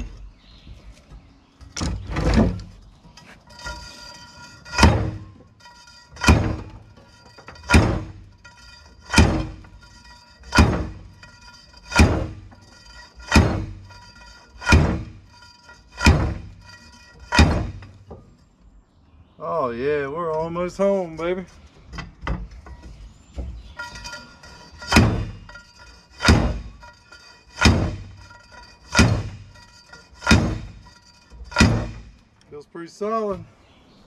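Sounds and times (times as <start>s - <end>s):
steel pipe slamming on metal: 17.3s - 17.9s, 27.6s - 28.2s, 30.2s - 30.8s, 31.5s - 32.2s.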